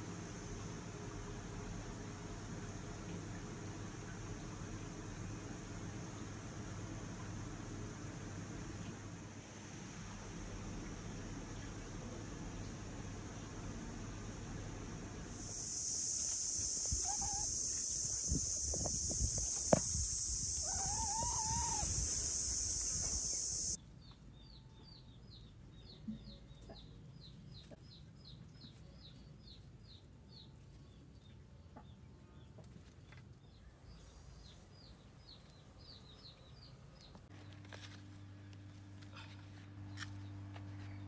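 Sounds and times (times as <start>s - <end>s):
low hum: 0.0s - 23.8s
loud high hiss: 13.8s - 23.8s
faint high chirps: 15.4s - 25.1s
hen wavering call: 15.7s - 18.3s, 20.3s - 23.8s.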